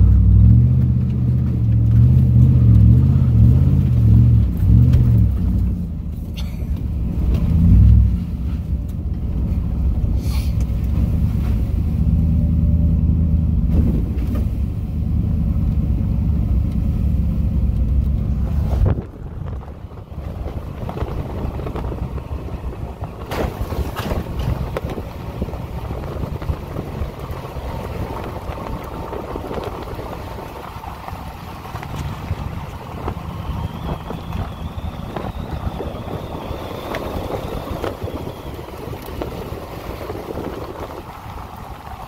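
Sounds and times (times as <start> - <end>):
pickup engine and tyres rumbling: 0.0 - 42.0
wind on microphone: 18.4 - 42.0.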